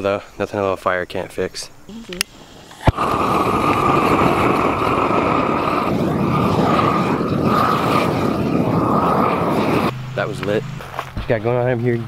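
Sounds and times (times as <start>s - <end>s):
propane torch roaring: 2.2s - 11.1s.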